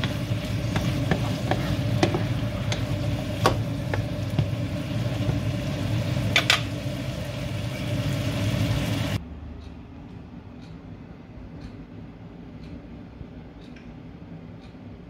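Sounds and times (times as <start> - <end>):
spatula clicking against pan: 0.0 - 5.4
food sizzling in a frying pan: 0.0 - 9.2
low hum: 0.0 - 11.5.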